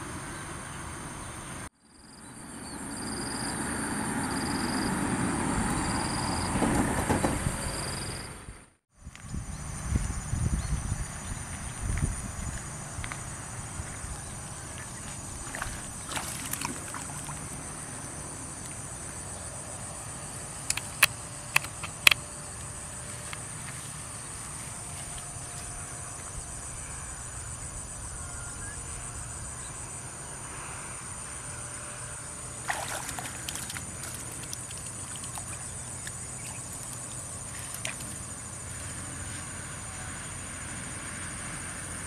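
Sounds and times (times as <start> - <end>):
insects trilling: 9.1 - 42.0
sharp clicks: 20.7 - 22.2.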